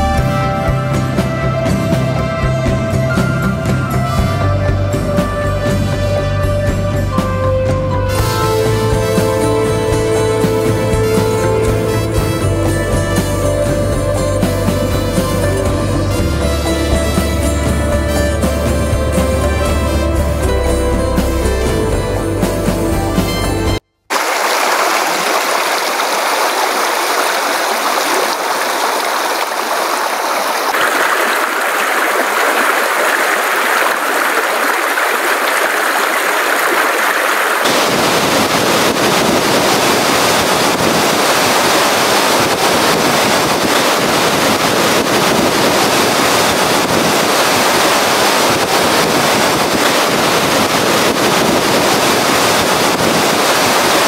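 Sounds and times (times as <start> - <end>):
large waterfall rushing: 24.1 - 54.0
stream splashing over stones: 24.1 - 54.0.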